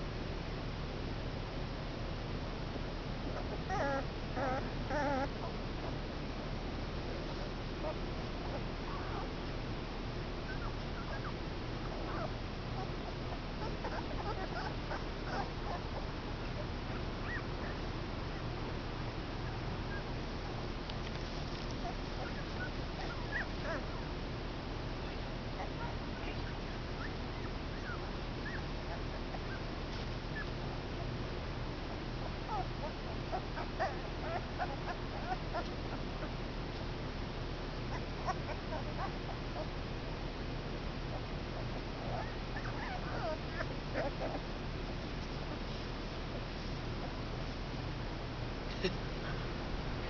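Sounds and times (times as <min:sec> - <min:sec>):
low background noise: 0:00.0 - 0:50.0
puppies squeaking and whimpering: 0:03.4 - 0:05.6, 0:10.5 - 0:17.8, 0:21.6 - 0:24.1, 0:25.1 - 0:29.7, 0:32.2 - 0:36.4, 0:37.8 - 0:39.7, 0:41.1 - 0:44.5.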